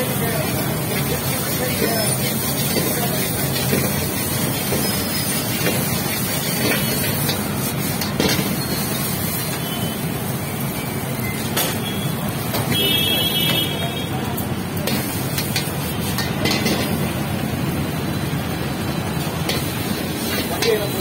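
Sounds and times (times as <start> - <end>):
rumbling kitchen din: 0.0 - 21.0
steel ladle clinking: 14.9 - 17.0, 19.4 - 21.0.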